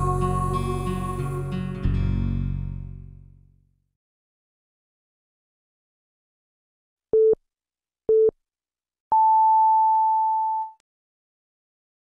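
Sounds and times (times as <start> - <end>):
electronic time signal beeps: 9.1 - 10.8.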